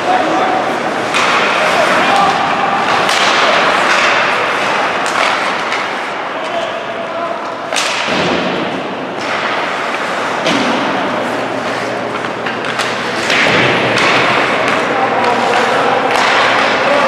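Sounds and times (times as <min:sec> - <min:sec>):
skates and voices din: 0:00.0 - 0:17.0
puck and sticks knocking: 0:01.0 - 0:06.0, 0:11.6 - 0:17.0
puck thudding against boards: 0:09.2 - 0:16.8.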